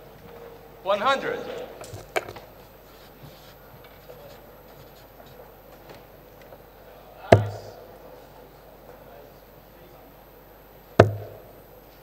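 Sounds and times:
dart hitting dartboard: 0:07.4 - 0:07.8, 0:11.0 - 0:11.4.

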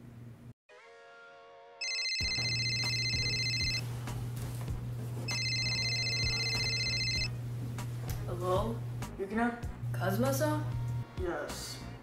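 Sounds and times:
phone electronic ringtone: 0:01.8 - 0:03.8, 0:05.3 - 0:07.3.

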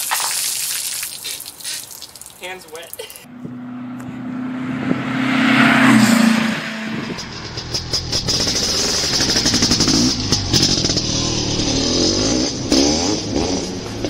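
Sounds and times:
engine revving: 0:03.3 - 0:14.0.

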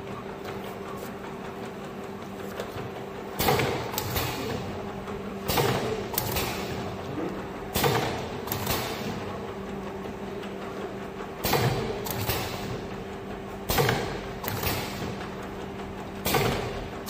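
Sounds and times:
conveyor motor hum: 0:00.0 - 0:17.0
machine sharp knock: 0:03.4 - 0:04.6, 0:05.4 - 0:06.8, 0:07.7 - 0:09.1, 0:13.6 - 0:15.1.

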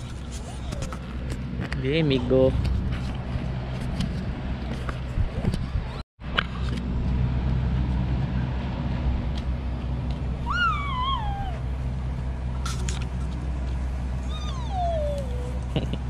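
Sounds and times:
low mechanical hum: 0:00.0 - 0:16.0
short high cry: 0:10.4 - 0:11.6.

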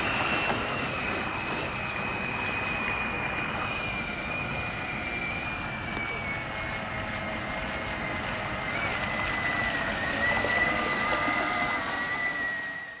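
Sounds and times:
boat engine whining: 0:00.0 - 0:13.0
rush of water: 0:05.4 - 0:12.9.

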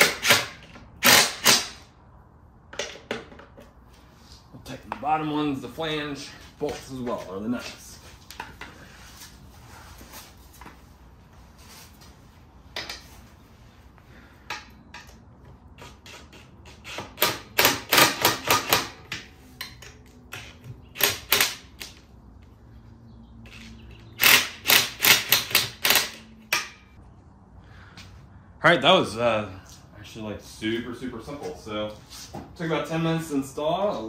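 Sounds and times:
impact driver rattling: 0:17.0 - 0:19.1, 0:24.1 - 0:26.8.

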